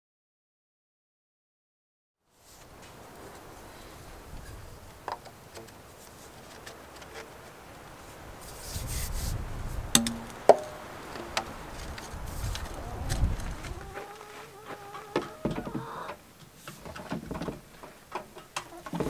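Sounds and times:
plastic pipe knocks: 0:10.0 - 0:10.8.

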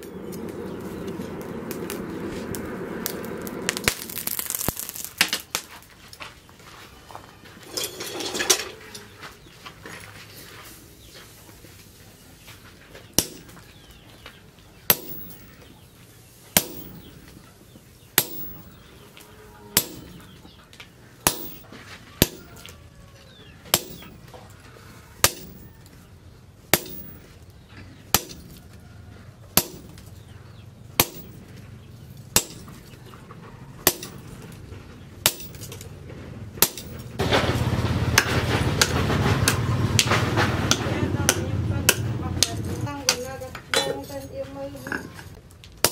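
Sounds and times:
loud continuous noise: 0:00.0 - 0:09.8, 0:10.4 - 0:45.9
hammer striking chisel on anvil: 0:13.2 - 0:13.6, 0:14.9 - 0:15.7, 0:16.6 - 0:17.3, 0:18.2 - 0:18.9, 0:19.8 - 0:20.4, 0:21.2 - 0:22.7, 0:23.7 - 0:24.3, 0:25.2 - 0:25.7, 0:26.7 - 0:27.3, 0:28.1 - 0:28.6, 0:29.6 - 0:30.0, 0:31.0 - 0:31.6, 0:32.4 - 0:33.0, 0:33.8 - 0:34.3, 0:35.2 - 0:35.8, 0:36.6 - 0:37.0, 0:38.2 - 0:44.2.

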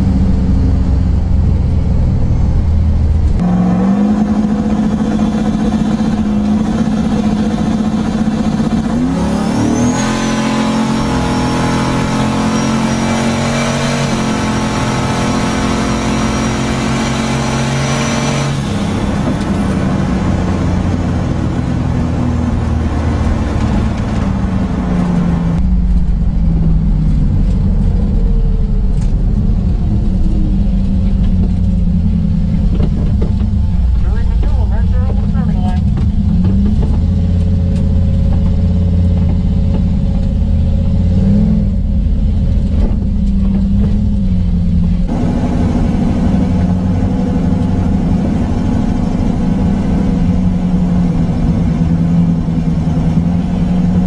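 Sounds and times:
car engine revving: 0:00.0 - 0:54.0
high turbo whistle: 0:09.3 - 0:14.4.

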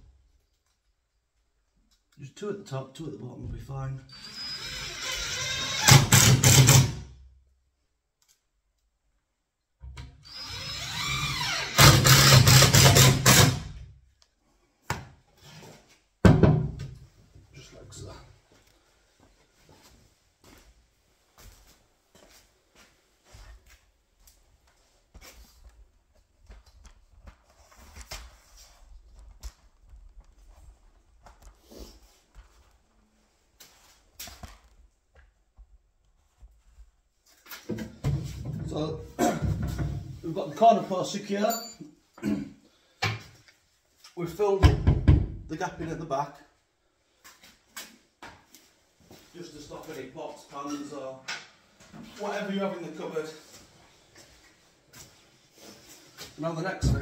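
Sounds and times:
power drill driving screws into wood: 0:04.1 - 0:07.0, 0:10.2 - 0:13.8.

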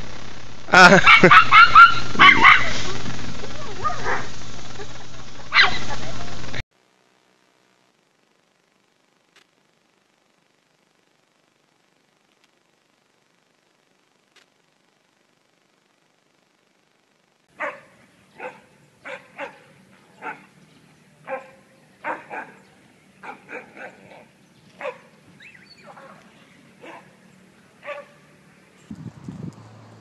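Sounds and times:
small dog barking: 0:01.0 - 0:02.9, 0:03.6 - 0:04.3, 0:05.5 - 0:06.0, 0:17.6 - 0:20.6, 0:21.2 - 0:26.2, 0:26.8 - 0:27.2, 0:27.8 - 0:28.3.

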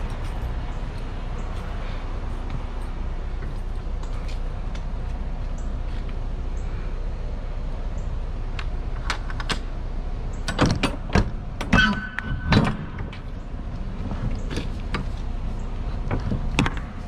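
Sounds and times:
steady low rumble: 0:00.0 - 0:17.0
metal lock bars clanking: 0:10.4 - 0:13.2
ringing metallic squeal: 0:11.7 - 0:12.8.

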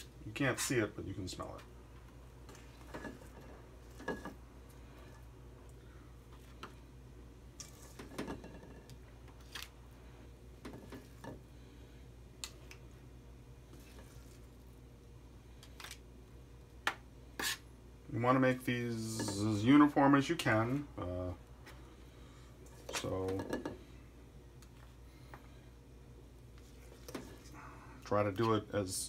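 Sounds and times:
spoons scraping metal bowl: 0:17.4 - 0:17.6.

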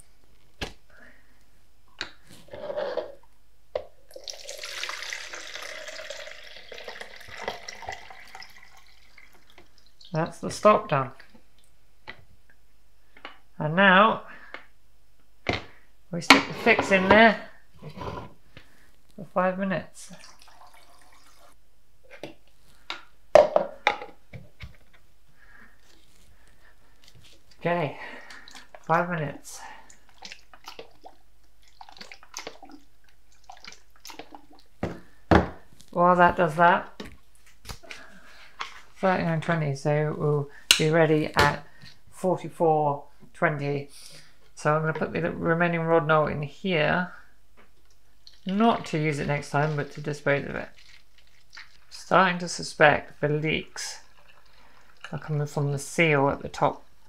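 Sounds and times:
liquid pouring into plastic jug: 0:04.0 - 0:10.2, 0:20.1 - 0:21.6, 0:29.9 - 0:34.7, 0:48.2 - 0:52.0, 0:54.0 - 0:55.1.

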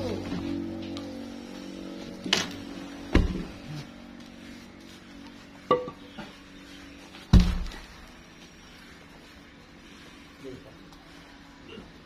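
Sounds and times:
heavy wooden log thuds: 0:07.3 - 0:07.8.

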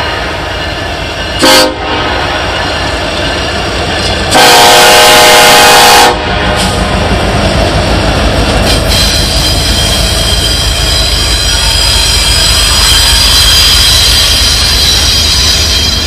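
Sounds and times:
locomotive engine and wheels rumbling: 0:00.0 - 0:16.0
locomotive air horn blasts: 0:01.4 - 0:02.0, 0:04.3 - 0:06.3.

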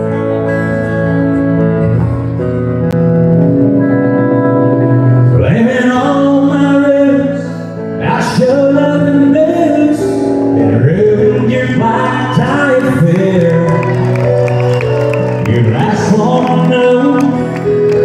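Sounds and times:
country band playing: 0:00.0 - 0:18.0
man singing: 0:05.3 - 0:14.2, 0:15.2 - 0:18.0.

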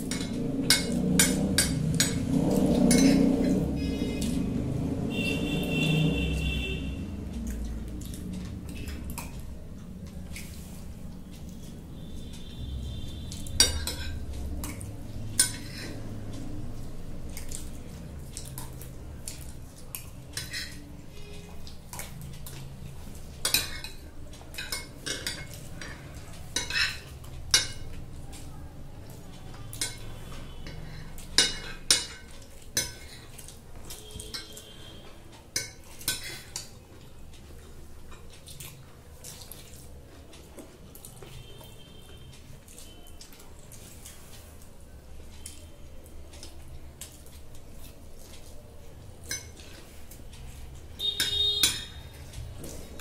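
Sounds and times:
cutlery clinking on glass plates: 0:00.0 - 0:04.4, 0:13.3 - 0:16.0, 0:18.4 - 0:22.2, 0:23.2 - 0:28.0, 0:29.6 - 0:36.9, 0:49.2 - 0:50.0, 0:51.0 - 0:53.0.

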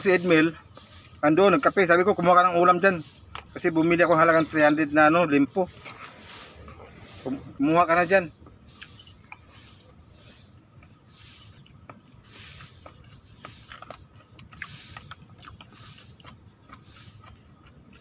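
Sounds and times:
person chewing: 0:08.7 - 0:09.8, 0:10.8 - 0:18.0.

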